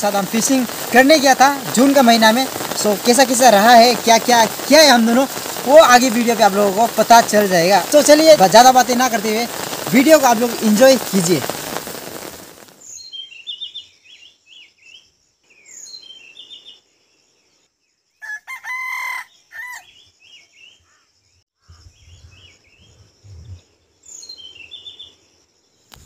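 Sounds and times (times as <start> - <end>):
small birds chirping: 0.0 - 18.3, 19.2 - 26.0
rooster crowing: 18.2 - 19.9.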